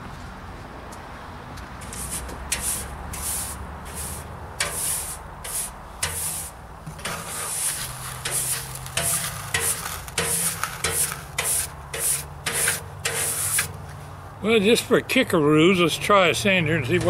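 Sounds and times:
brush sweeping on metal: 1.8s - 14.0s.

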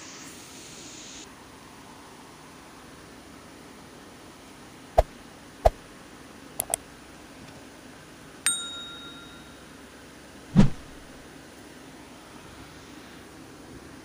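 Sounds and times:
bright bell-like ding: 8.5s - 9.7s
dull thump: 10.6s - 11.1s.

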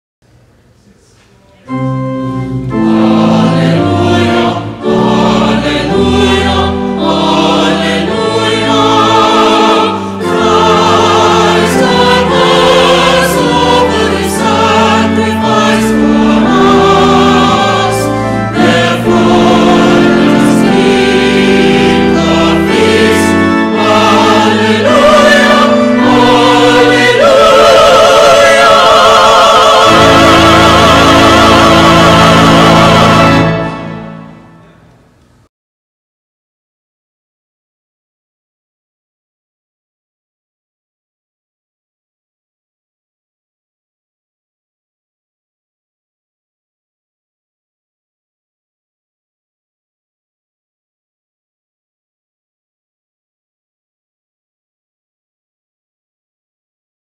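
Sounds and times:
organ chords: 1.6s - 35.4s
church choir singing: 1.7s - 34.7s.

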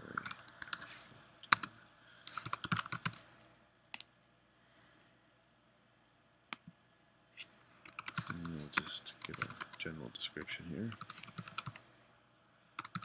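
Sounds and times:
keyboard typing: 0.0s - 3.2s, 7.8s - 9.8s, 10.4s - 11.8s, 12.8s - 13.0s.

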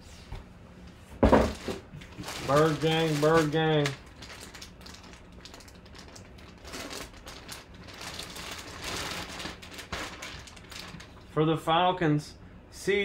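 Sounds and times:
plastic bag crinkling: 1.5s - 11.3s.

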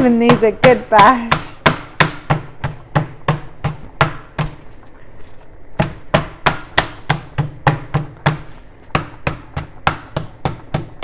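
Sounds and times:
meat mallet thudding: 0.0s - 4.7s, 5.8s - 11.0s.

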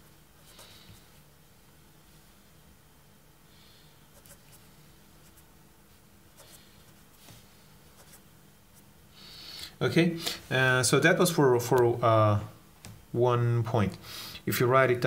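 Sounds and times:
marker pen scratching on paper: 4.1s - 5.5s, 6.3s - 8.9s.

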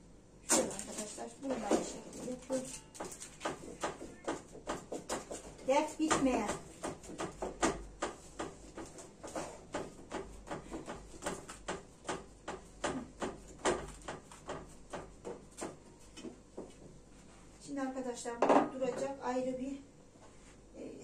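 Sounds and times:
hands tapping dough in a tray: 2.8s - 16.8s.

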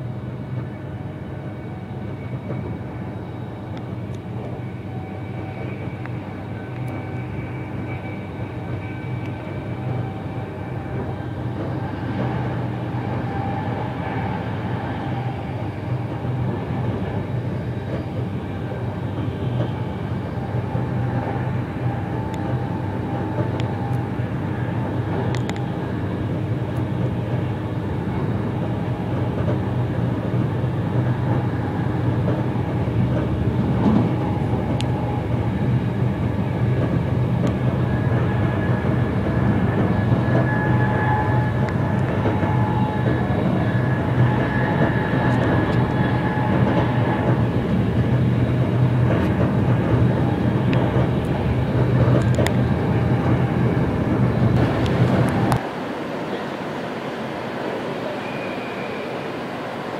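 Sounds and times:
train rumbling on track: 0.0s - 59.9s
faint high tone: 57.9s - 59.8s.

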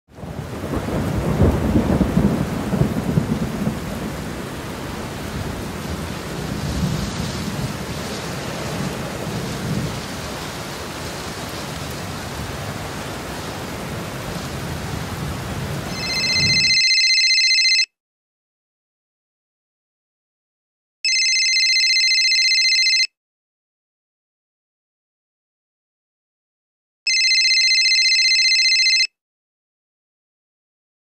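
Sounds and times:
rain: 0.1s - 16.6s
rolling thunder: 0.2s - 16.8s.

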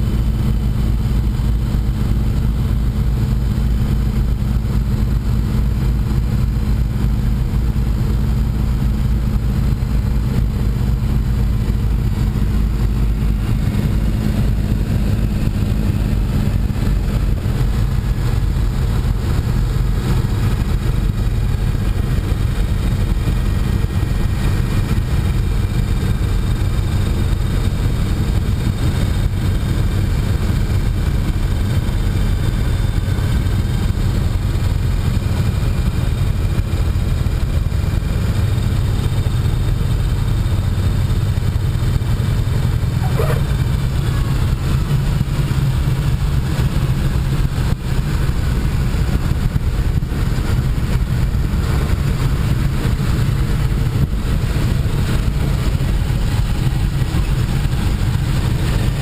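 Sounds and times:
propeller plane engines droning: 0.0s - 59.0s.

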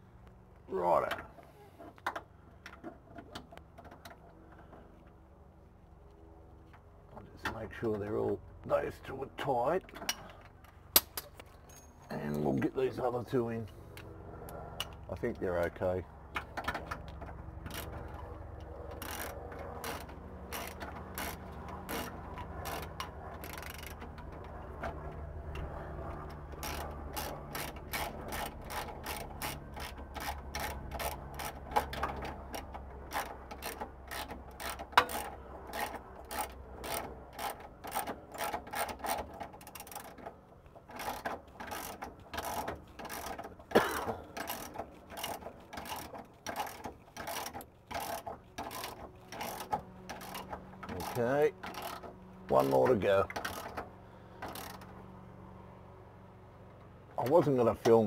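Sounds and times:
socket ratchet clicking: 18.9s - 24.4s.

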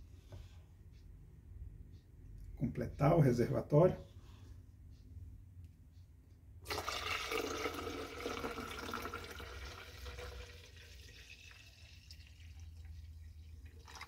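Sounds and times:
water pouring into plastic tank: 6.7s - 14.0s.

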